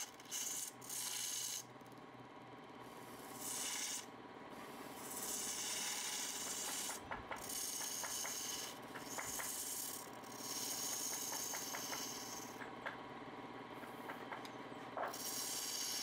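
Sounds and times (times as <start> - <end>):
tool rubbing on spinning wood: 0.0 - 1.7, 3.0 - 12.7, 13.8 - 16.0
lathe motor hum: 2.4 - 13.0, 13.8 - 16.0.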